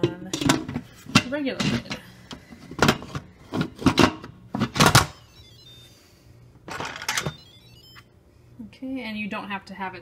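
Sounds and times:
pot lid clattering and scraping: 0.0 - 2.0.

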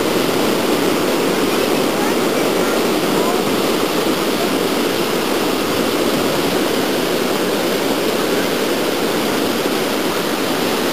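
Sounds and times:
river rushing: 0.0 - 10.9.

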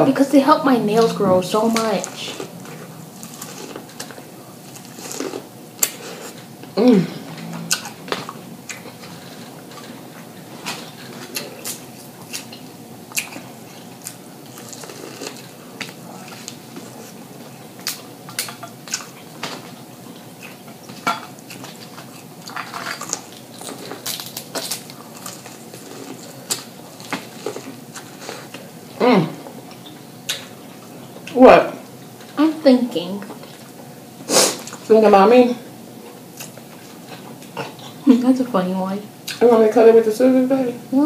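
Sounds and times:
chewing and lip smacking: 11.3 - 16.6.

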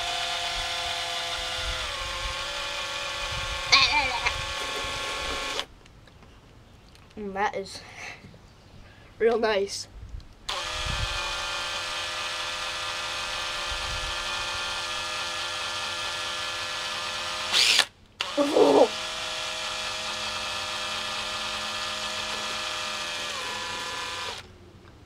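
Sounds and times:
cordless drill motor whine: 0.0 - 5.7, 10.5 - 24.5.

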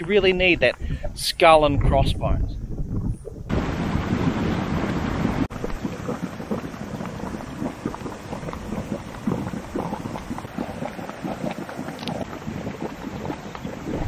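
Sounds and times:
hot spring water bubbling: 3.4 - 14.0.

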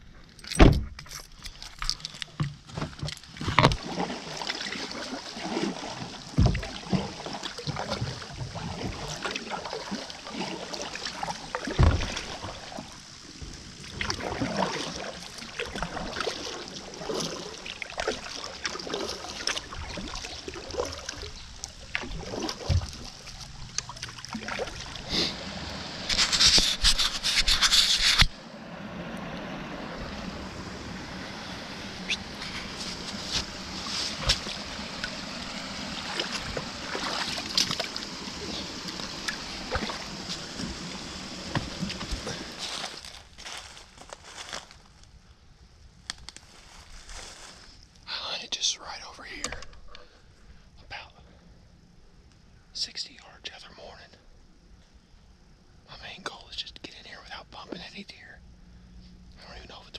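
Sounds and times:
paddle splashes: 2.8 - 44.6
hissing scraping noise: 25.0 - 28.4, 31.0 - 43.1.

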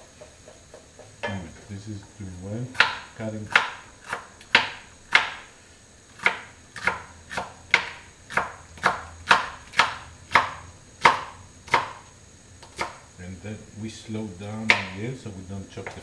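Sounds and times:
knife chopping on cutting board: 2.7 - 5.5, 6.2 - 12.0, 12.6 - 13.0, 14.6 - 15.0.

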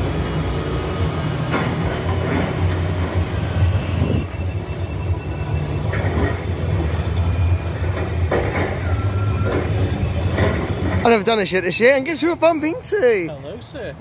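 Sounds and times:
diesel machinery drone: 0.0 - 14.0.

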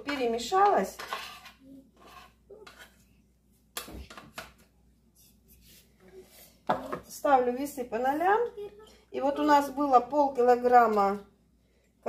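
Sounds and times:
spoon scraping a lid: 0.9 - 3.0.

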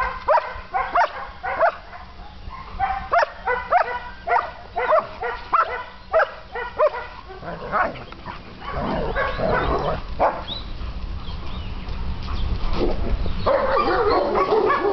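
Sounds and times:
dogs yipping and whining: 0.3 - 10.8, 13.2 - 14.9
dogs growling: 6.6 - 10.5.

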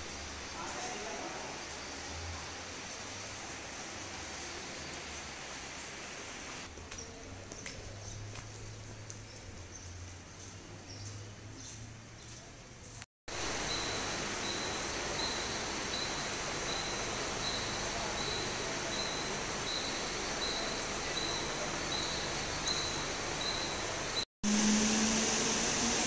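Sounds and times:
train whirring hum: 13.3 - 26.0.

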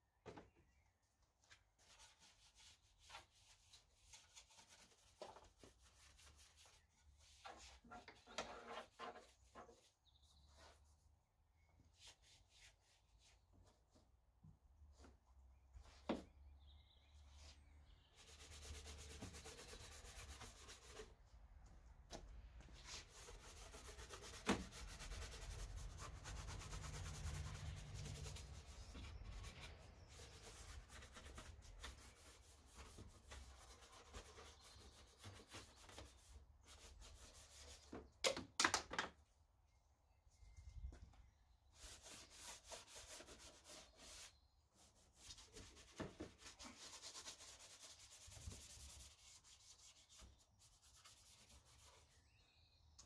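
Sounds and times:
brush scrubbing: 22.9 - 37.7.

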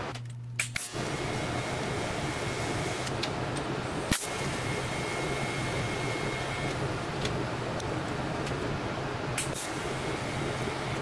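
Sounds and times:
welder electrical hum: 0.0 - 11.0.

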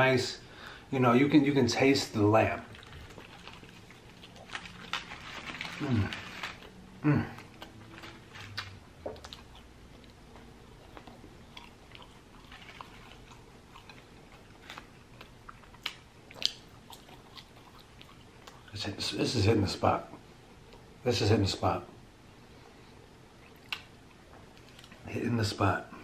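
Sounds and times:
close-up chewing: 2.4 - 18.8, 23.3 - 25.1
wet mouth clicks and smacks: 23.4 - 23.9.

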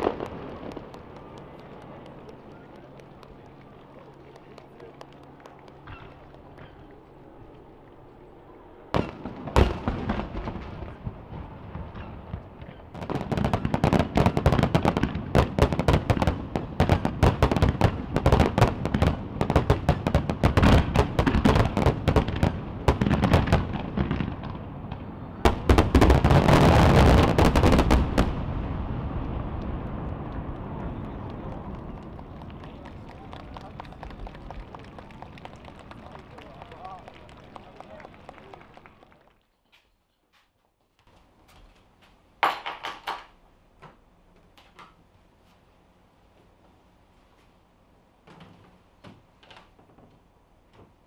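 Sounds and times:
firework bangs: 0.0 - 7.0, 8.9 - 36.6
fireworks crackling: 0.0 - 39.4.

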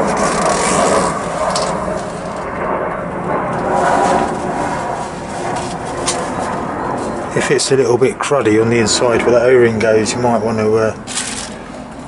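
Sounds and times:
paper towel rubbing metal: 0.0 - 2.4, 3.6 - 7.2
steady background noise: 0.0 - 12.0.

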